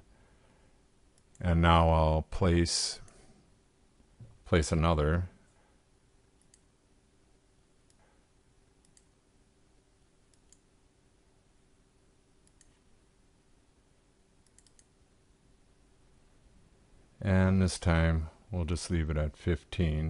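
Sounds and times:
faint steady hum: 0.0s - 20.0s
computer mouse clicks: 1.1s - 1.4s, 6.4s - 6.7s, 8.8s - 9.2s, 10.3s - 10.7s, 12.4s - 12.8s, 14.4s - 14.9s.

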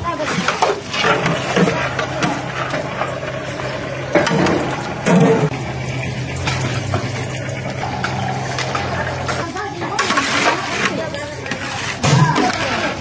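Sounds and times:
water running: 0.1s - 13.0s
liquid sloshing: 0.2s - 13.0s
steady low hum: 1.2s - 10.9s.

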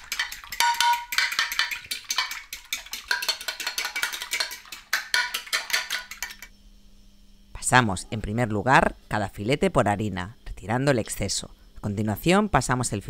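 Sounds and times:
utensil clicking against bowl: 0.0s - 6.5s.

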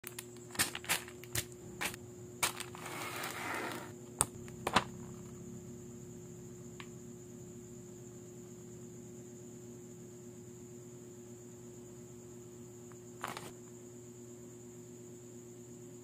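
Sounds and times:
plastic bag crinkling: 0.0s - 3.9s, 13.2s - 13.5s
steady electrical hum: 0.0s - 16.0s
paper sheet rustling: 2.4s - 3.9s, 13.2s - 13.5s.

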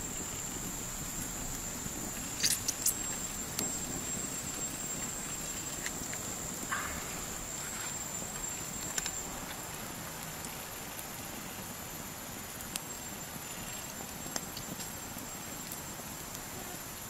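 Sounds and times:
high-pitched insect drone: 0.0s - 10.0s.

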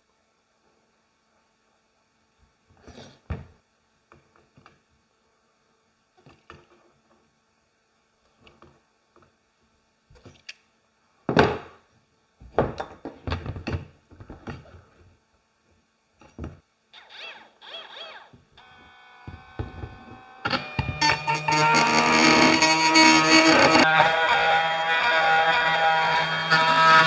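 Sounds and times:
hard objects knocking and clunking: 11.3s - 11.8s, 12.4s - 14.9s, 19.2s - 21.1s.

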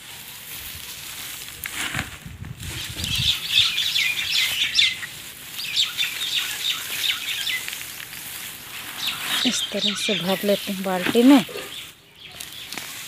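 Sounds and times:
cut grass rustling: 0.0s - 13.0s
birds chirping: 2.7s - 13.0s.

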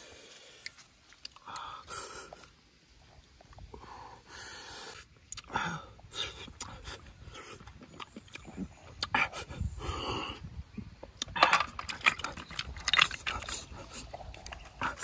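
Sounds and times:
slurping and chewing: 6.2s - 9.5s, 11.1s - 15.0s.

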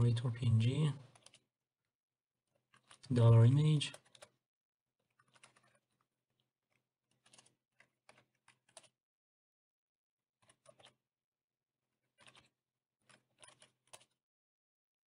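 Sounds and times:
faint keyboard typing: 0.0s - 1.5s, 2.7s - 4.4s, 5.1s - 6.1s, 6.7s - 9.0s, 10.4s - 11.0s, 12.2s - 14.2s.

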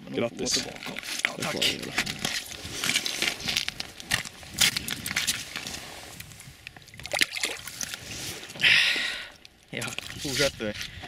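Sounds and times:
crunching on snow-covered ice: 1.1s - 6.3s.

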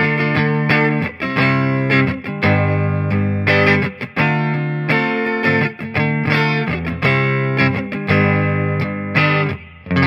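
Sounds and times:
clean electric guitar chords: 0.0s - 10.0s.

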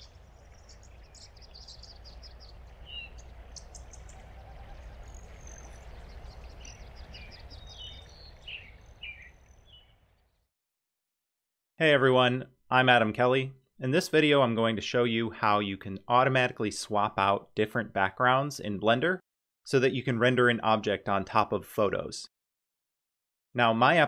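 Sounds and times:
steady low rumble: 0.0s - 8.4s
birds chirping and calling: 0.0s - 10.0s.

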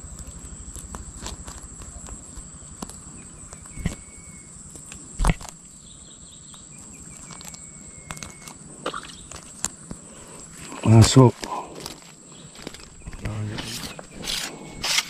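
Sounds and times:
high insect buzz: 0.0s - 15.0s
bird chirps and whistle: 3.4s - 4.5s.

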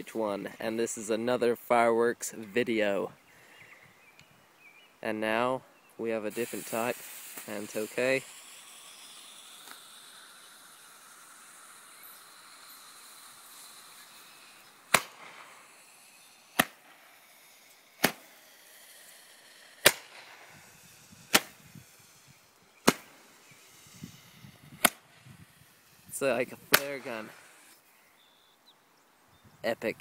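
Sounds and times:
firework hiss: 6.1s - 28.4s
firework pops: 14.9s - 15.6s, 16.5s - 16.9s, 18.0s - 18.3s, 19.8s - 20.3s, 21.3s - 21.6s, 22.8s - 23.1s, 26.6s - 27.2s.

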